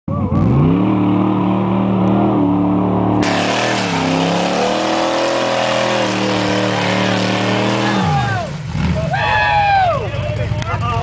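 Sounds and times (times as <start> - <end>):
engine revving hard under load: 0.2 - 9.2
spinning tyres throwing dirt: 3.2 - 9.1.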